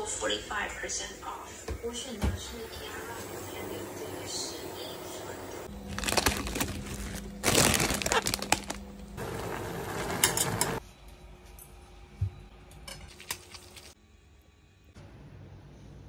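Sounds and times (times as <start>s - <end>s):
plastic packet crinkling: 5.8s - 8.9s.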